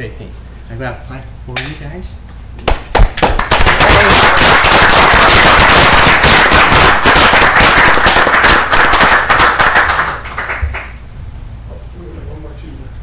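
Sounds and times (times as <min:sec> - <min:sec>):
crowd applauding: 0:02.9 - 0:11.0.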